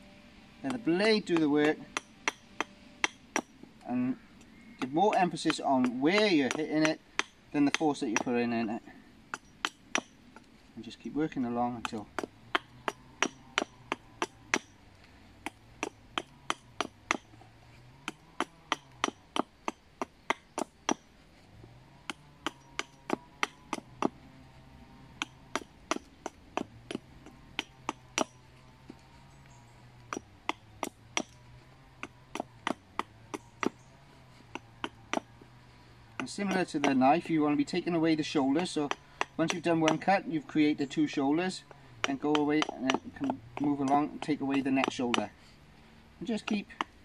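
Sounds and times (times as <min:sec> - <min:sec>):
axe chopping wood: 0:00.7 - 0:03.6, 0:04.7 - 0:08.4, 0:09.3 - 0:24.3, 0:25.1 - 0:40.3, 0:41.1 - 0:45.4, 0:46.2 - 0:47.0.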